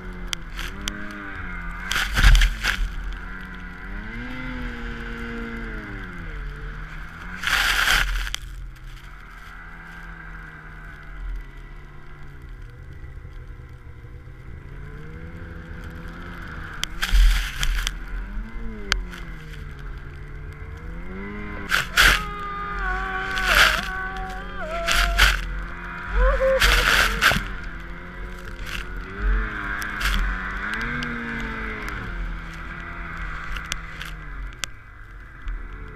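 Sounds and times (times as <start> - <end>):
snow vehicle engine running: 0.0 - 35.9.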